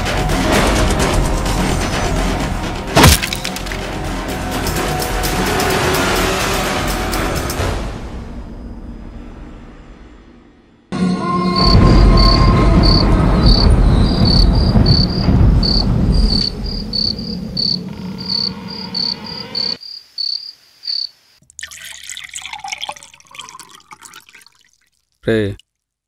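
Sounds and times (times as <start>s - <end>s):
crickets chirping: 11.2s - 21.4s
liquid poured into glass: 21.4s - 25.2s.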